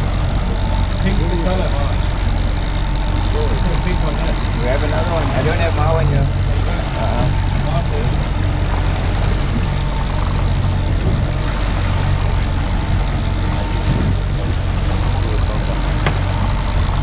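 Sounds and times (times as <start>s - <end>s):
outboard motors humming: 0.0s - 17.0s
wind and water noise: 0.0s - 17.0s.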